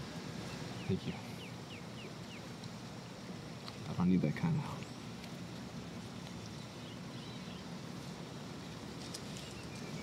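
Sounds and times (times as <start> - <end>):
faint bird chirps: 0.4 - 2.5, 6.4 - 7.8.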